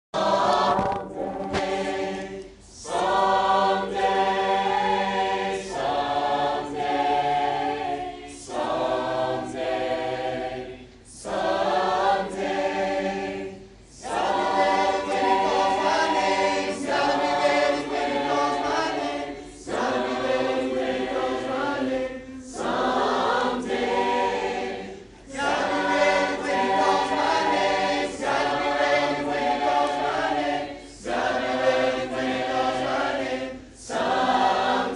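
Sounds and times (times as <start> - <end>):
group singing a cappella: 0.2 - 34.9
singers breathing: 19.4 - 19.7.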